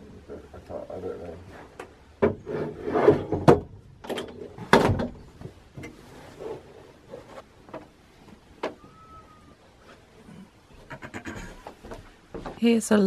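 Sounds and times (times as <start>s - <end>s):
metal frame clunk and scrape: 1.6s - 7.9s.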